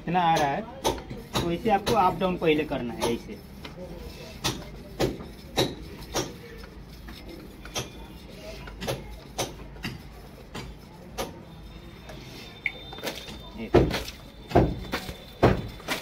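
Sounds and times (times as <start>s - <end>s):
pipe knocking and water splashing: 13.8s - 16.0s.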